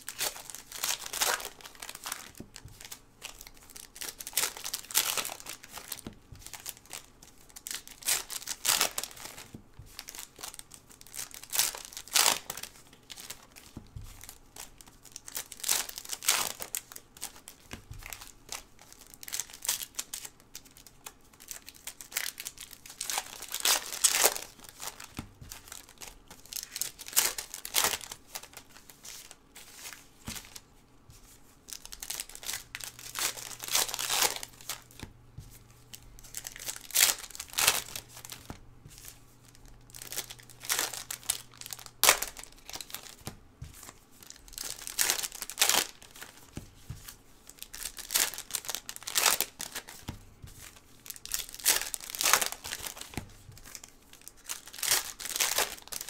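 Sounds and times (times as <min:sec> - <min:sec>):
foil wrappers crinkling and tearing: 0:00.0 - 0:30.6, 0:31.7 - 0:35.1, 0:35.9 - 0:56.0.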